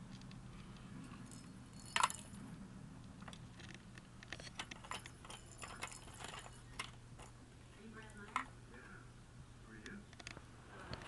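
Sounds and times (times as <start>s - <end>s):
small jingle bell jingling: 1.0s - 2.4s, 4.5s - 8.5s.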